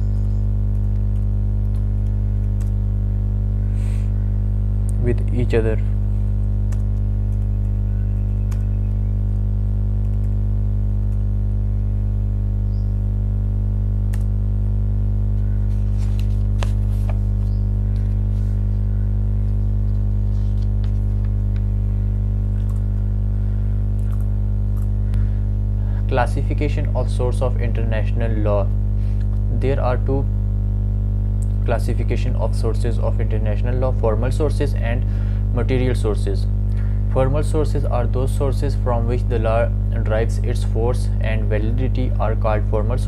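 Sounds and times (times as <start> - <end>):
loud electrical hum: 0.0 - 43.0
keyboard typing clicks: 0.7 - 2.8, 6.7 - 9.0, 14.1 - 14.3, 22.6 - 23.0.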